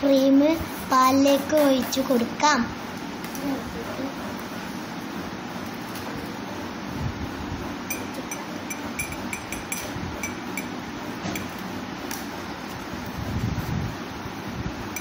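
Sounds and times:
metal spoon clinking on bowl: 0:07.9 - 0:10.8.

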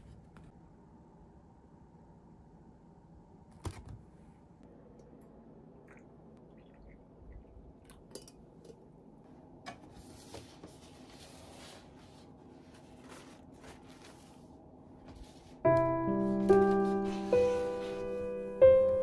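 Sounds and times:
paper box rustling: 0:10.4 - 0:14.5.

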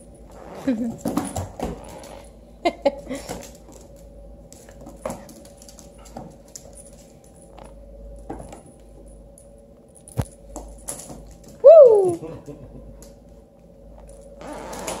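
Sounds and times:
faint steady hum: 0:00.0 - 0:15.0
animals scampering on hardwood floor: 0:03.2 - 0:08.8
short loud woo call: 0:11.6 - 0:12.2.

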